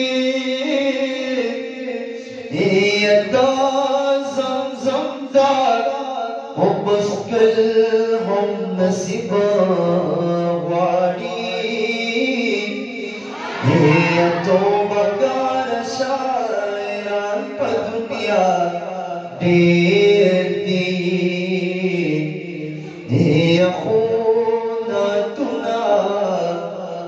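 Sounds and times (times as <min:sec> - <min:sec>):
man singing unaccompanied: 0:00.0 - 0:27.0.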